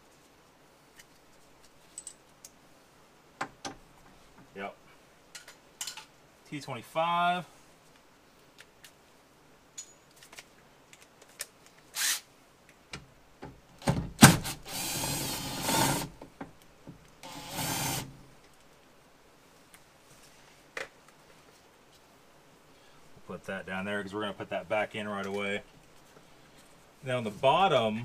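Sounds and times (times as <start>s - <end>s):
cordless drill driving screws: 12.0s - 12.2s, 14.2s - 16.2s, 17.2s - 18.2s.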